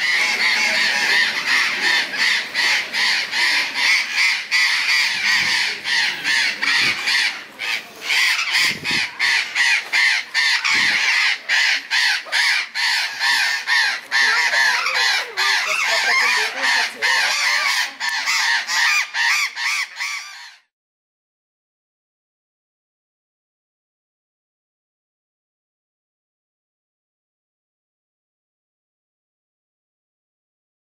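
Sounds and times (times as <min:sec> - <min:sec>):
parrots screeching and squawking: 0:00.0 - 0:20.7.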